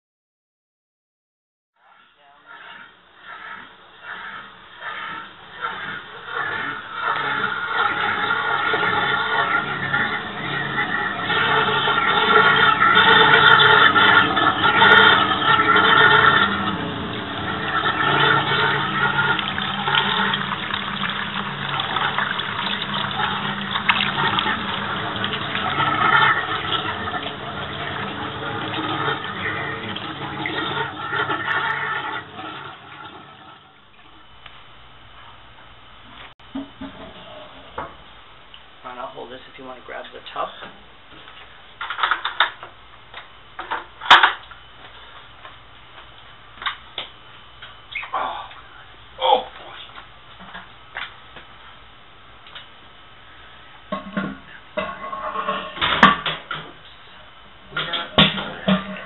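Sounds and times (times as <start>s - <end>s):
water pouring and splashing: 4.0s - 34.2s.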